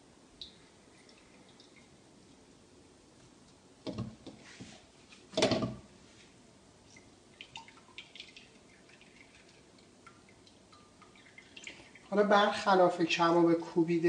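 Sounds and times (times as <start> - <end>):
juice dripping into bowl: 0.3 - 2.6, 6.8 - 12.3
wet squeezing of grated onion: 6.2 - 12.2.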